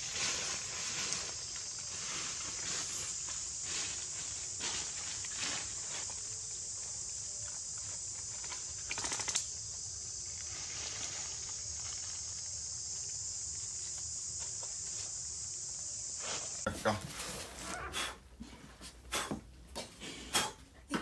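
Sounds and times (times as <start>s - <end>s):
dry leaves crackling and rustling: 0.0s - 7.4s, 10.2s - 14.0s
steady high hiss: 0.0s - 21.0s.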